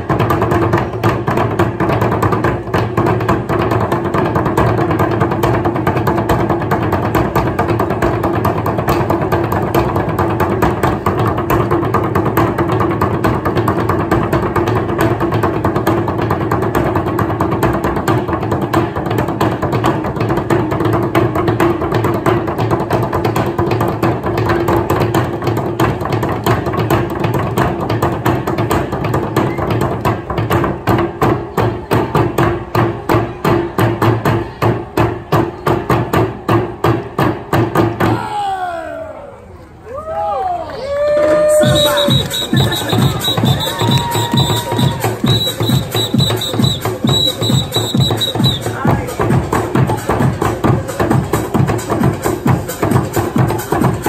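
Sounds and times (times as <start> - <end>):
water drums splashing: 41.6 - 49.9.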